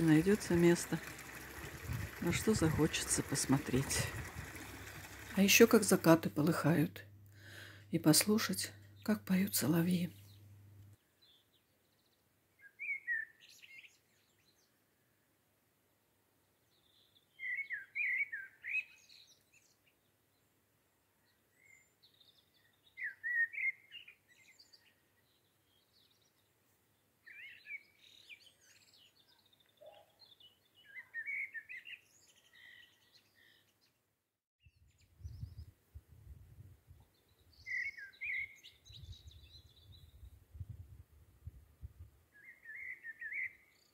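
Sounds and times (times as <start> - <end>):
nightingale singing: 12.6 - 14.1, 16.9 - 19.5, 21.6 - 26.2, 27.2 - 33.7, 37.1 - 40.4, 42.3 - 43.9.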